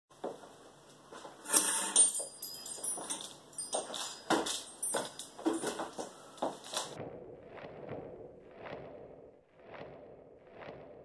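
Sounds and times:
high jingling: 0:01.9 - 0:06.3
knocks and rustles in a kitchen: 0:02.0 - 0:07.0.

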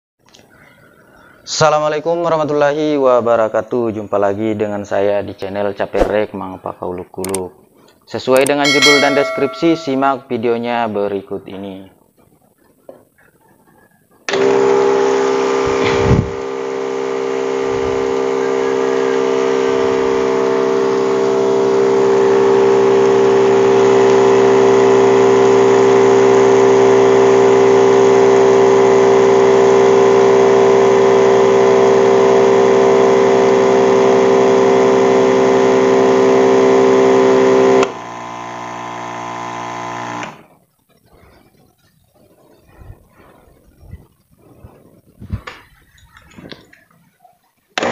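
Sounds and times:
electric pump motor hum: 0:14.3 - 0:40.4.

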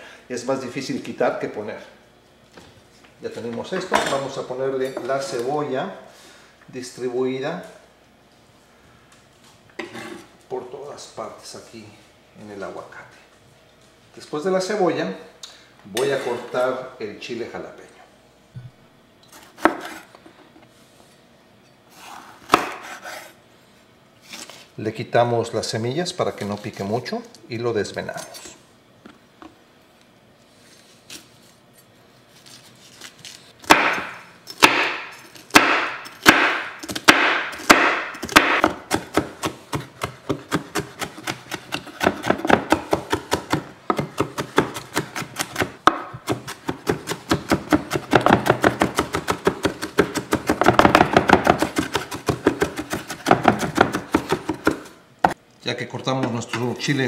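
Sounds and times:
knife chopping on wooden board: 0:19.5 - 0:20.0, 0:22.5 - 0:23.2, 0:33.6 - 0:54.9.

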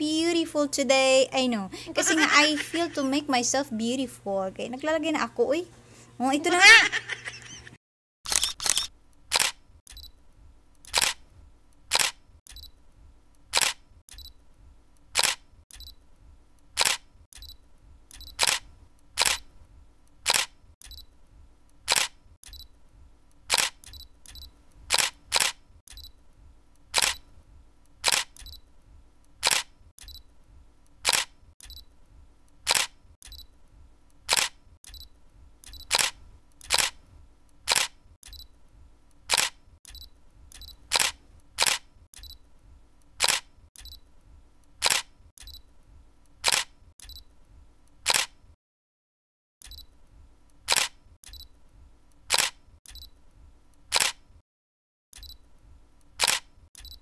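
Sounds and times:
camera shutter clicks: 0:08.3 - 0:10.1, 0:10.9 - 0:11.2, 0:11.9 - 0:12.7, 0:13.5 - 0:14.3, 0:15.1 - 0:15.9, 0:16.8 - 0:19.5, 0:20.2 - 0:21.0, 0:21.9 - 0:22.6, 0:23.5 - 0:26.1, 0:26.9 - 0:27.2, 0:28.0 - 0:28.6, 0:29.4 - 0:30.2, 0:31.0 - 0:31.8, 0:32.6 - 0:33.4, 0:34.3 - 0:37.0, 0:37.6 - 0:38.4, 0:39.3 - 0:42.4, 0:43.2 - 0:44.0, 0:44.8 - 0:45.6, 0:46.4 - 0:47.2, 0:48.0 - 0:48.4, 0:50.7 - 0:51.4, 0:52.3 - 0:53.1, 0:53.9 - 0:54.2, 0:56.2 - 0:57.0.

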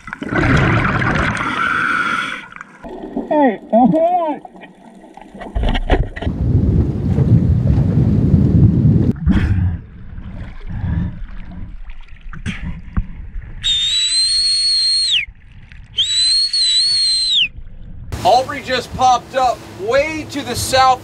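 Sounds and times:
scuba bubbles: 0:00.0 - 0:03.8
water splashing: 0:00.0 - 0:08.3, 0:09.1 - 0:16.8
underwater rumble: 0:04.4 - 0:13.9, 0:15.1 - 0:16.3, 0:17.3 - 0:18.3
shrill whistle blasts: 0:13.6 - 0:15.3, 0:16.0 - 0:17.5.

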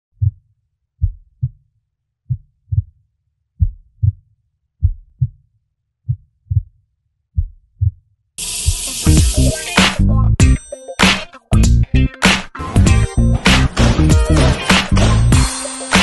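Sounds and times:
heartbeat thumps: 0:00.2 - 0:00.4, 0:01.0 - 0:01.6, 0:02.3 - 0:03.0, 0:03.6 - 0:04.2, 0:04.8 - 0:05.4, 0:06.1 - 0:06.7, 0:07.4 - 0:08.0.

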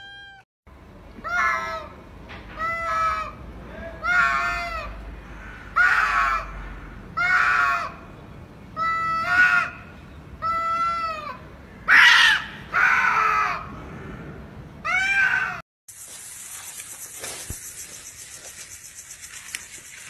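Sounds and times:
cats yowling: 0:10.4 - 0:13.7.

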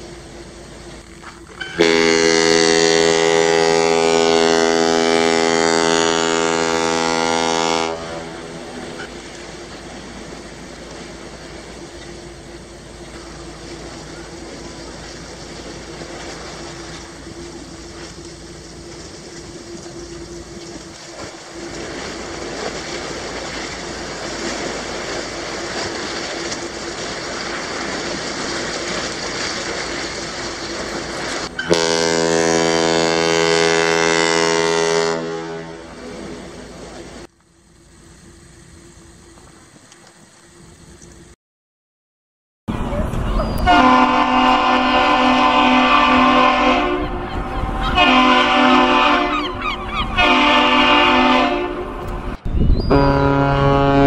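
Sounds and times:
steady rushing noise with hum: 0:00.0 - 0:01.7, 0:02.4 - 0:34.6
ship's horn blast: 0:01.5 - 0:10.3, 0:30.4 - 0:37.3, 0:42.7 - 0:54.0.

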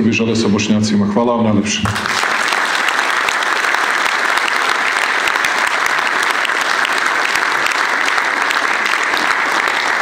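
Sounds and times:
audience applauding: 0:01.9 - 0:10.0.

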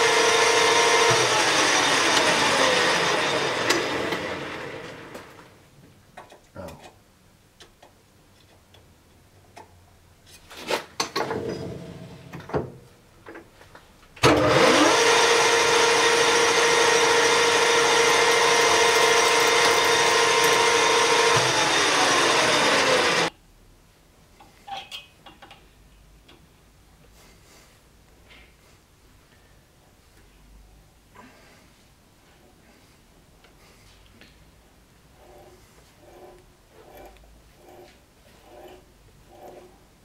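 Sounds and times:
lathe drilling metal: 0:00.0 - 0:05.2, 0:14.3 - 0:23.3.

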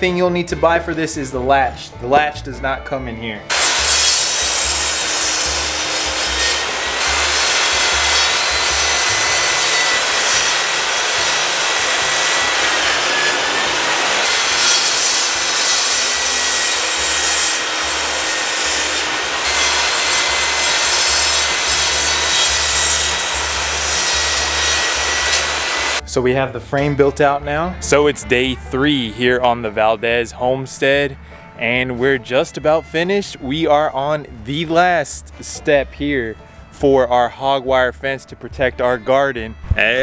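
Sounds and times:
table saw cutting wood: 0:03.5 - 0:26.0.

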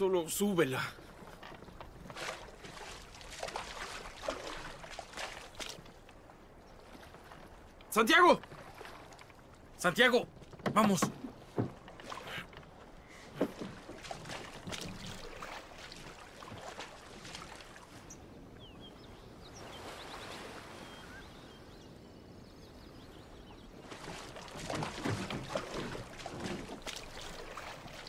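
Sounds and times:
water lapping: 0:00.0 - 0:21.7, 0:22.8 - 0:28.0
knocks and clatter of wood: 0:10.3 - 0:12.7, 0:13.3 - 0:15.3, 0:24.0 - 0:28.0.

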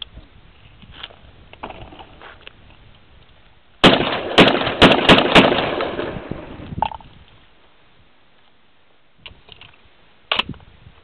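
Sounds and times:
shotgun shots echoing: 0:03.8 - 0:06.6.

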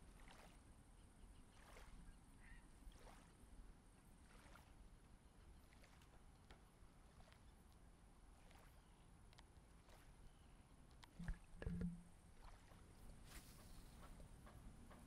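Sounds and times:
faint low outdoor rumble: 0:00.0 - 0:15.0.

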